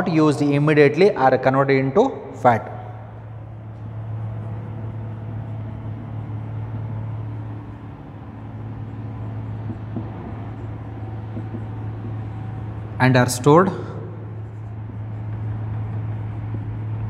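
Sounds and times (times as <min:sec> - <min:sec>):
low room hum: 0:00.0 - 0:17.0
marker squeaking on whiteboard: 0:08.8 - 0:13.0, 0:14.4 - 0:17.0.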